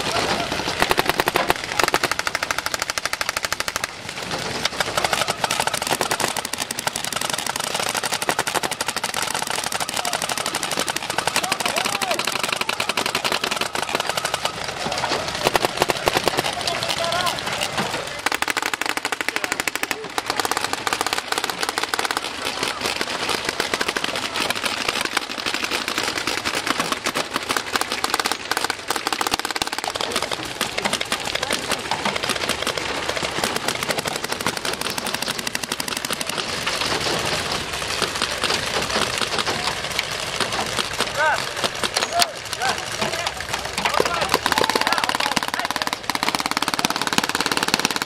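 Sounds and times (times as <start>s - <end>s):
paintball guns firing rapidly: 0.0s - 48.0s.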